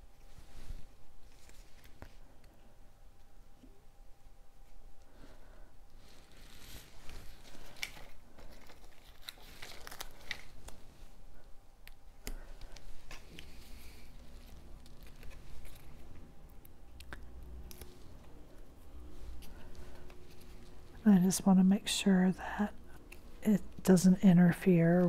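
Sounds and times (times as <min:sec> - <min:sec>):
cardstock rustling: 0:06.1 - 0:10.8.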